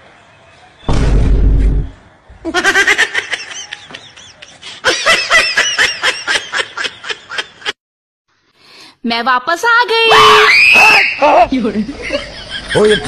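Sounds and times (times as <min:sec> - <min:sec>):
loud laughter: 0:02.4 - 0:07.8, 0:11.2 - 0:13.0.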